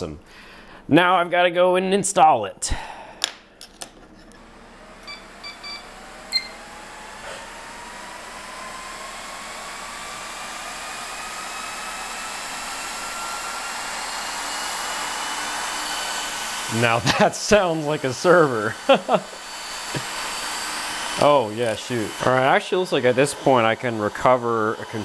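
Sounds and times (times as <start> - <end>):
server fans whining: 2.2 - 25.0
short beeps: 5.0 - 6.6.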